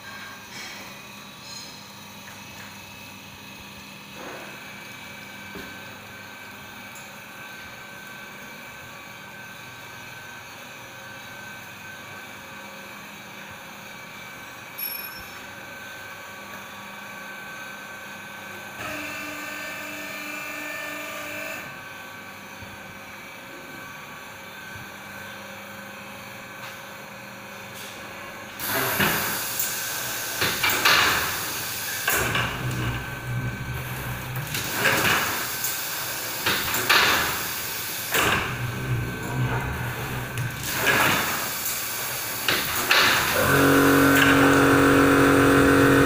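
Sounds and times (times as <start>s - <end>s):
machine motor hum: 28.6s - 46.0s.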